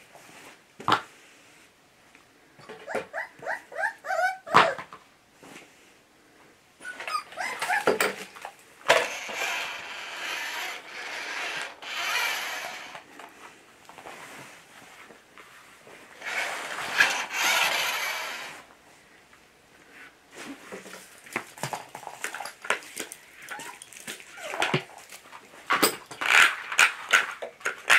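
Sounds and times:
puppy crying: 0:02.8 - 0:04.8, 0:06.8 - 0:08.1, 0:23.5 - 0:24.7
toy car motor whirring: 0:08.9 - 0:13.0, 0:16.2 - 0:18.6.

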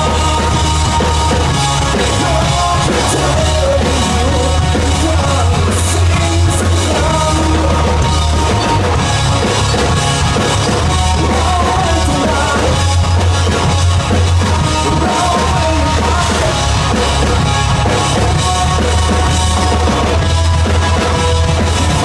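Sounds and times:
person singing into microphone: 0:00.0 - 0:08.9, 0:11.0 - 0:13.0, 0:14.4 - 0:16.7
bass guitar: 0:00.0 - 0:22.0
drum kit: 0:00.0 - 0:22.0
electric guitars: 0:00.0 - 0:22.0.

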